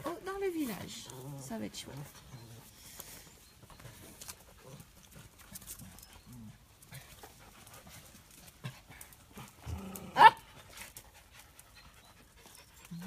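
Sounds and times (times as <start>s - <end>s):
paws tapping on paving: 3.0s - 13.0s
dogs grunting: 8.6s - 10.5s.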